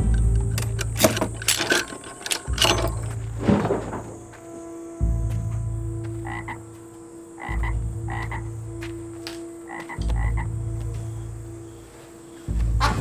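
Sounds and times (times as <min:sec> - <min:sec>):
deep droning rumble: 0:00.0 - 0:04.4, 0:05.0 - 0:06.7, 0:07.5 - 0:09.2, 0:10.0 - 0:11.8
frogs croaking: 0:00.0 - 0:13.0.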